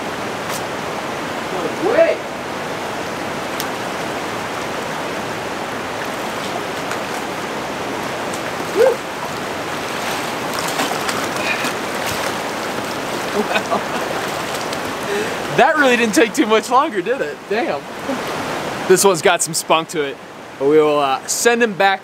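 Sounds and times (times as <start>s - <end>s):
water splashes: 0.0s - 20.7s
creek water rushing: 0.0s - 22.0s
person yelping: 8.7s - 9.0s.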